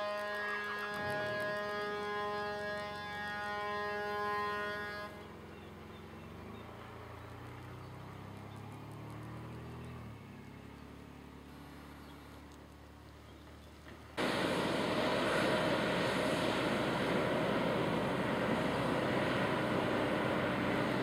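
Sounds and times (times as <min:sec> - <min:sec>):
multi-tone warning siren wail: 0:00.0 - 0:05.2
low machine drone: 0:00.0 - 0:07.4, 0:14.2 - 0:21.0.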